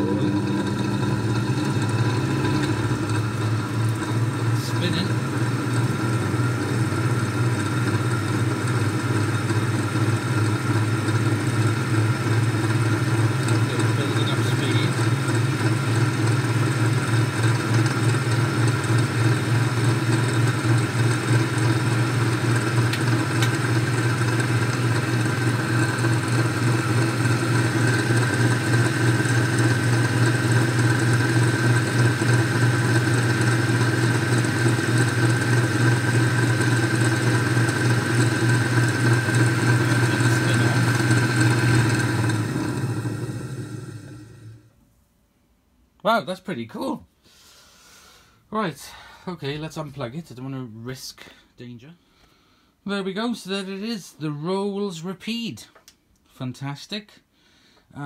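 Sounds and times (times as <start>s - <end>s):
spin drier motor humming: 0.0s - 44.8s.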